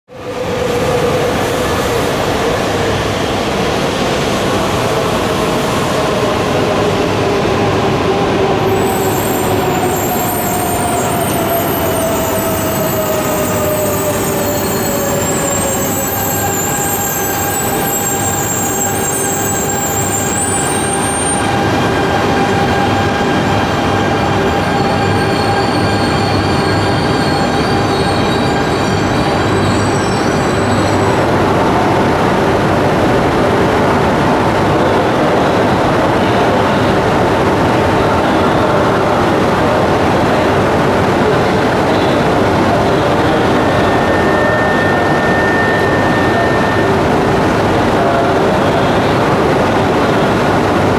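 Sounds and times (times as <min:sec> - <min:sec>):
standing train hum: 0:00.1 - 0:50.9
high brake squeal: 0:08.7 - 0:31.3, 0:41.9 - 0:49.1.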